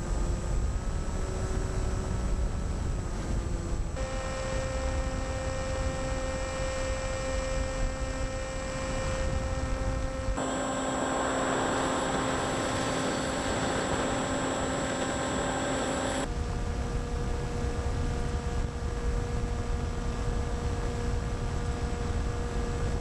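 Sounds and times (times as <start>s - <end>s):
electric motor propeller whine: 0.0s - 23.0s
wind rushing over microphone: 7.7s - 23.0s.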